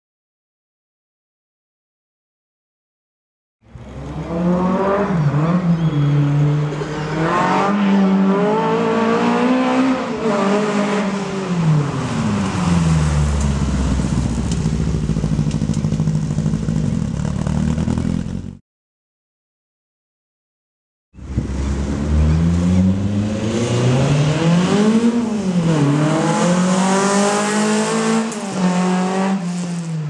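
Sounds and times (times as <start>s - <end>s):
rally car engine revving: 3.8s - 18.6s, 21.2s - 30.0s.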